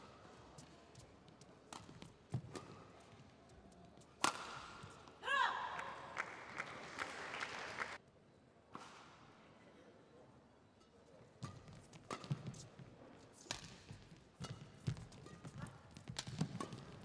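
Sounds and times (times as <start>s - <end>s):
rackets hitting shuttlecock: 1.7s - 5.2s, 11.4s - 17.0s.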